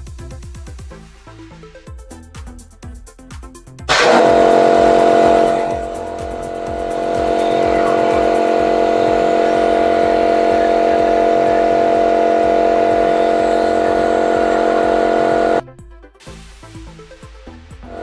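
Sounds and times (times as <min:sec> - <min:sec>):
pressure washer motor and pump hum: 0:03.9 - 0:15.6.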